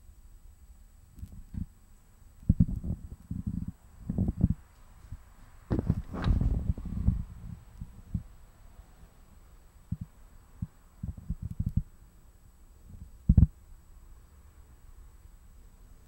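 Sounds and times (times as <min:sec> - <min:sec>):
faint steady hum: 0:00.0 - 0:16.0
low dull thumps and knocks: 0:05.7 - 0:07.3.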